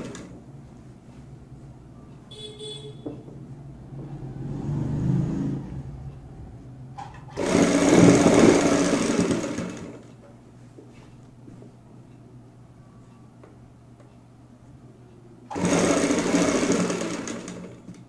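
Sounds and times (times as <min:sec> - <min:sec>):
sewing machine stitching: 0:00.0 - 0:00.4, 0:07.0 - 0:10.2, 0:15.5 - 0:18.0.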